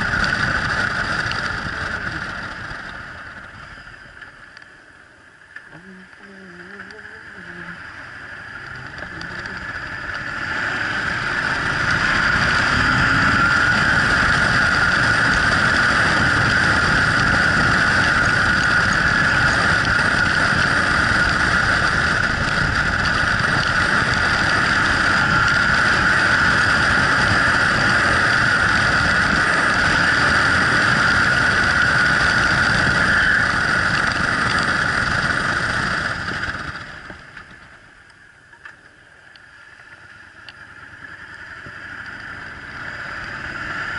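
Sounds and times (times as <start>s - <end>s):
motorcycle engine: 0.0s - 43.9s
wind rushing on microphone: 8.7s - 37.2s.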